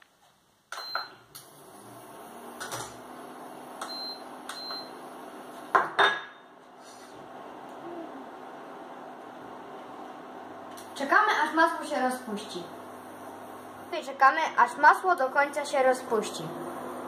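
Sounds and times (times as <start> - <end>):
induction hob hum: 6.4 - 14.0, 15.2 - 17.0.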